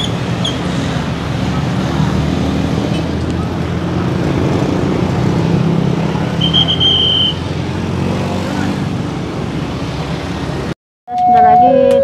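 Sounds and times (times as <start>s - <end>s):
vehicles passing close by: 0.0s - 10.8s
high-pitched beep: 11.1s - 12.0s.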